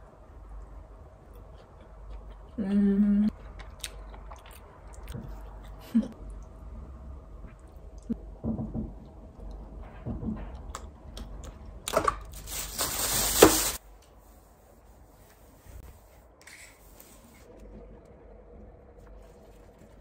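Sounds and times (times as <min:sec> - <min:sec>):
plastic bag crinkling: 0:12.3 - 0:13.8.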